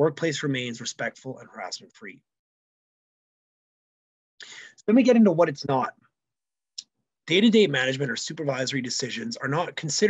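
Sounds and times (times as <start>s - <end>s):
man speaking: 0.0s - 2.2s, 4.4s - 5.9s, 7.3s - 10.0s.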